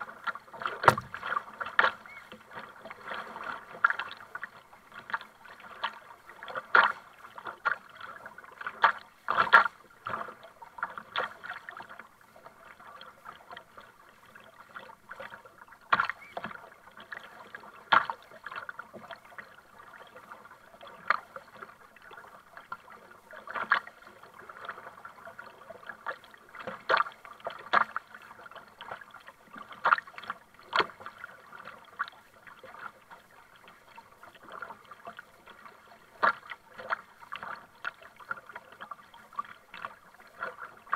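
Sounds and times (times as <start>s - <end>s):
kayak paddle strokes splashing: 0.0s - 40.9s
water lapping: 0.0s - 40.9s.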